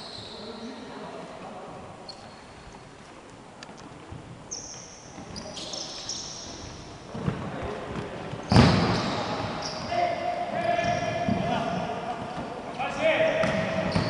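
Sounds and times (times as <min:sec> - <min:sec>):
shoes squeaking on wooden court: 0:00.0 - 0:00.8, 0:02.0 - 0:12.8, 0:13.4 - 0:14.0
ball thudding in gym hall: 0:06.6 - 0:12.6, 0:13.2 - 0:14.0.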